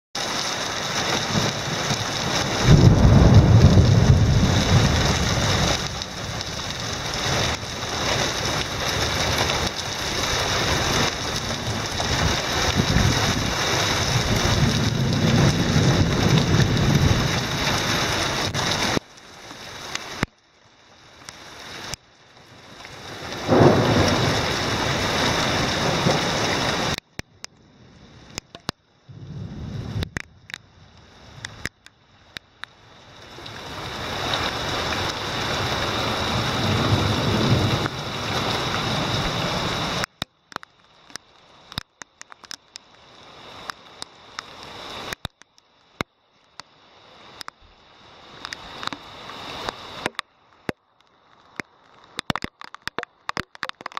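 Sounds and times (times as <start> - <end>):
heavy rain pouring: 0.2 - 53.9
thunder rumbles: 1.1 - 19.0, 23.4 - 27.0, 29.1 - 31.6, 35.5 - 40.0.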